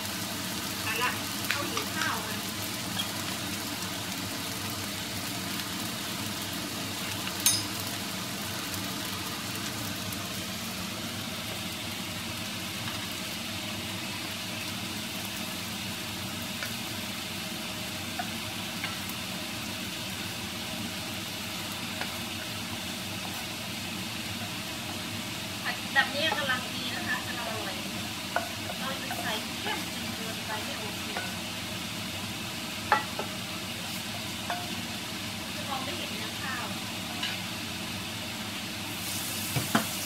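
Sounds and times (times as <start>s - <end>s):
rice sizzling in a pan: 0.0s - 40.0s.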